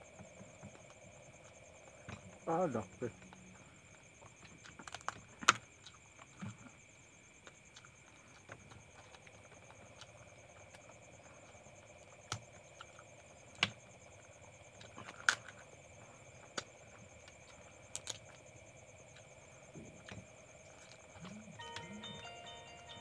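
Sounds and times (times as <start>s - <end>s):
faint background hum: 0.0s - 23.0s
crab shells cracking: 17.9s - 18.4s.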